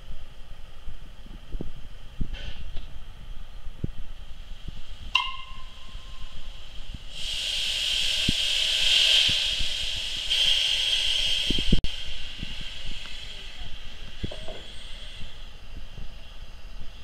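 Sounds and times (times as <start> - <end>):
steam locomotive hissing: 4.2 - 17.0
short ringing tone: 5.2 - 6.3.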